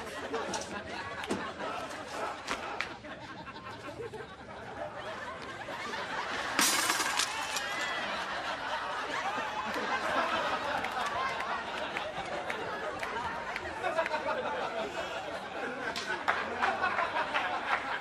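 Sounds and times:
studio audience laughing: 0:00.0 - 0:18.0.

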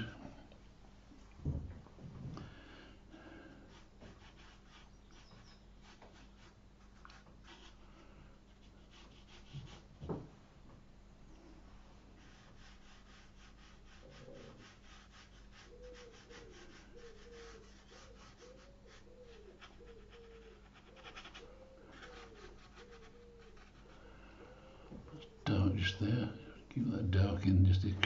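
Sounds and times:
paintbrush scratching on paper: 0:03.7 - 0:09.9, 0:12.2 - 0:24.1
bird cooing: 0:15.7 - 0:20.6.

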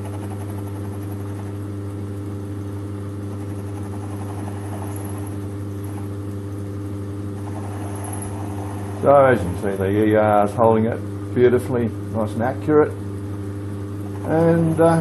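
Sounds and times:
lathe motor humming: 0:00.0 - 0:11.3, 0:12.9 - 0:15.0
lathe tool cutting metal: 0:14.1 - 0:15.0.

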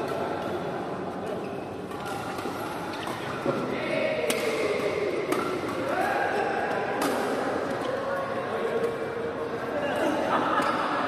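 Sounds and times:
rackets hitting shuttlecock: 0:04.2 - 0:07.8.

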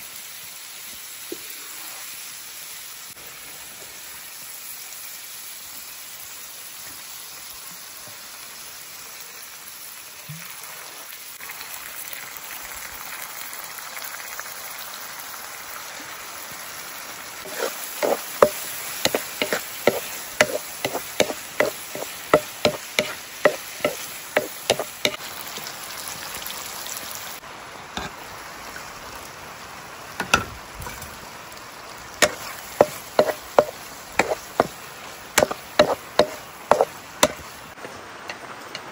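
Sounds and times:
food sizzling in a wok: 0:00.0 - 0:38.9
wooden spatula knocking on pan: 0:17.5 - 0:24.9, 0:32.2 - 0:34.7, 0:35.4 - 0:37.4.

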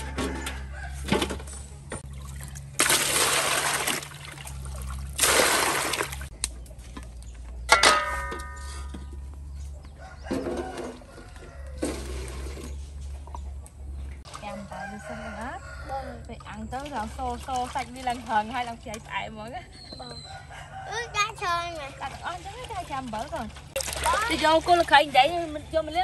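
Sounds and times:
water splashing into metal basin: 0:02.0 - 0:06.3, 0:16.4 - 0:19.2, 0:21.6 - 0:25.9
metal clank: 0:07.6 - 0:09.1.

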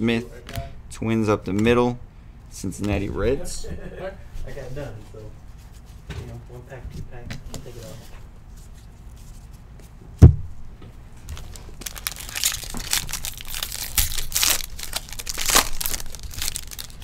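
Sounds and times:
dull thump: 0:10.2 - 0:10.5
plastic wrapper crinkling and tearing: 0:11.2 - 0:17.0.

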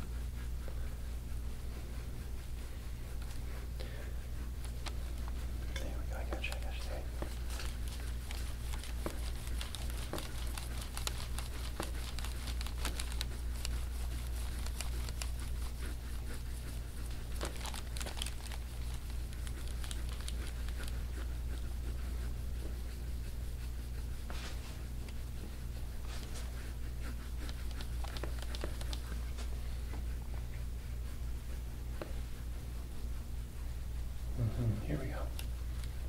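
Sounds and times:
steady low hum: 0:00.0 - 0:36.0
scraping tool crackly clicks on skin: 0:04.6 - 0:16.4, 0:17.0 - 0:21.3, 0:27.4 - 0:29.3.

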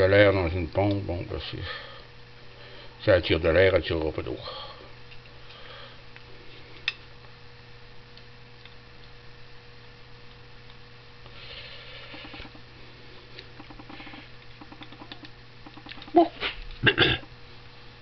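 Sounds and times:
steady electrical hum: 0:00.0 - 0:18.0
faint rapid ticking of pump: 0:13.4 - 0:16.2.

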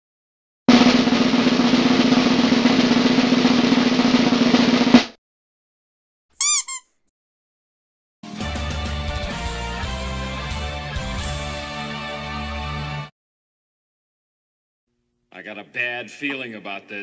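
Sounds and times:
drum roll: 0:00.7 - 0:05.2
short high chirps: 0:06.4 - 0:06.9.

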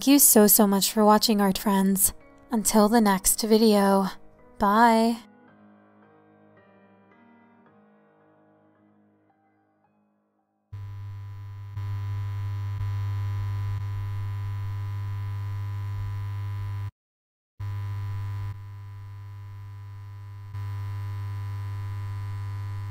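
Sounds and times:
low electronic hum: 0:10.8 - 0:16.9, 0:17.6 - 0:22.9.

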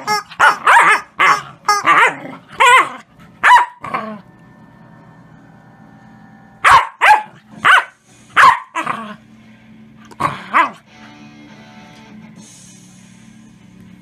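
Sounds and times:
puppy barking: 0:00.0 - 0:04.0, 0:06.6 - 0:09.0, 0:10.5 - 0:10.8.

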